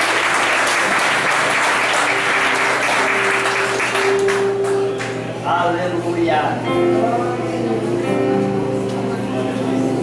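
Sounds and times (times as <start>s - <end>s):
congregation applauding: 0.0s - 5.3s.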